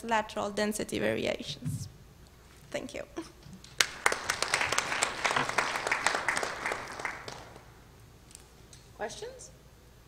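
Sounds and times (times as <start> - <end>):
audience applauding: 3.7 - 7.8.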